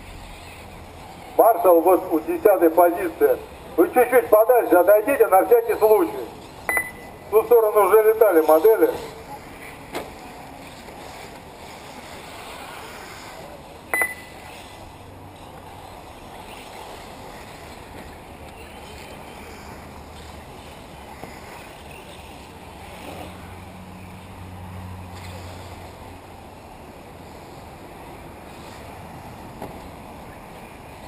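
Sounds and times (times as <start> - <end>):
model cars running on dirt: 7.4 - 24.4.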